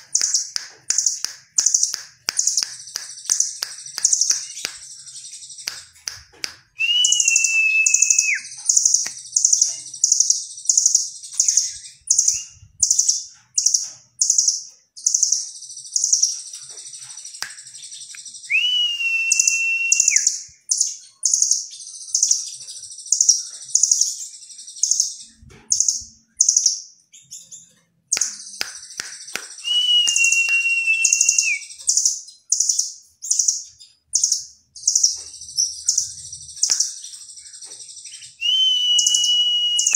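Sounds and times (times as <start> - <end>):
bird singing rapid high chips: 0.0 - 27.5, 28.1 - 39.9
bird held whistle: 6.8 - 8.4, 18.5 - 20.3, 29.6 - 31.7, 38.4 - 39.9.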